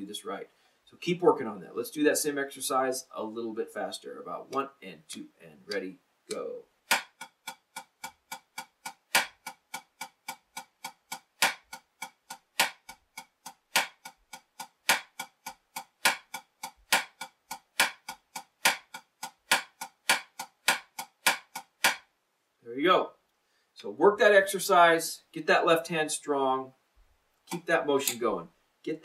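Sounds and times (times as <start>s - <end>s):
drumstick tapping practice pad: 4.5s - 22.1s, 27.5s - 28.2s.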